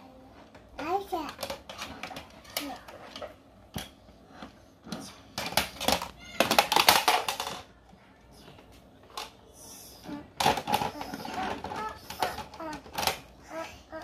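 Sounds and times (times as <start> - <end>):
plastic toy parts clicking: 5.4 - 7.7.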